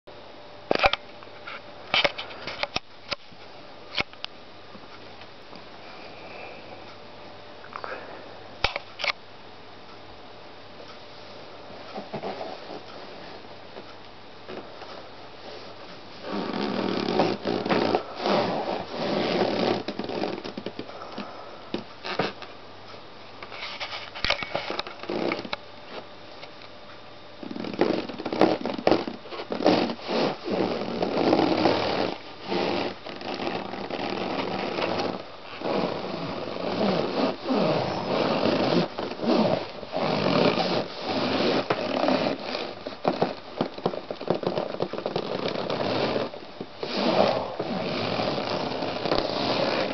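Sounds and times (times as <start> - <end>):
balloons squeaking and rubbing: 15.5 - 20.8, 27.4 - 49.9.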